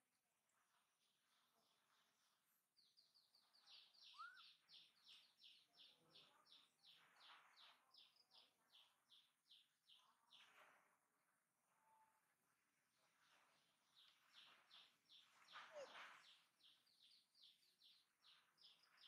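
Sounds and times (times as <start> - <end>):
bird song falling notes: 3.7 - 5.3.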